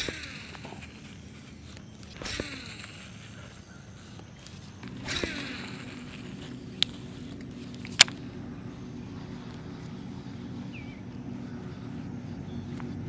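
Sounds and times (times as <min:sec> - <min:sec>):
sharp reel clicks: 0:00.0 - 0:08.3
fishing reel spool whine: 0:00.0 - 0:13.0
fishing reel whirring hum: 0:00.0 - 0:13.0.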